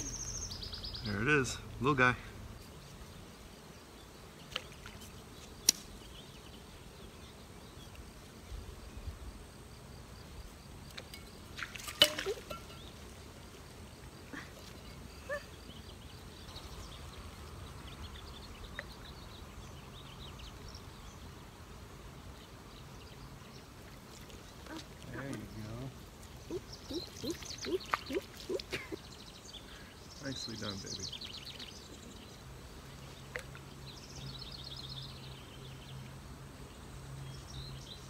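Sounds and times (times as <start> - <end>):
faint bird chirps: 24.6 - 32.4.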